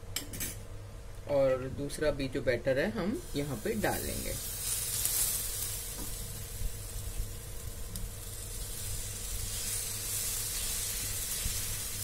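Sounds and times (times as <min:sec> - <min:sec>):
batter sizzling in hot oil: 0:03.2 - 0:12.0.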